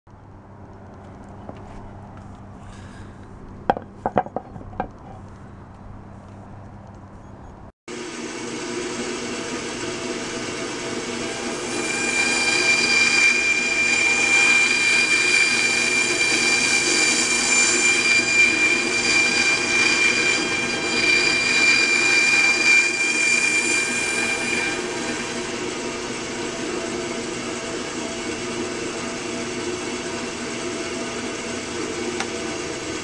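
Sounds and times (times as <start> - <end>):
steady high whine: 7.9 - 33.0
bandsaw cutting foam: 8.9 - 33.0.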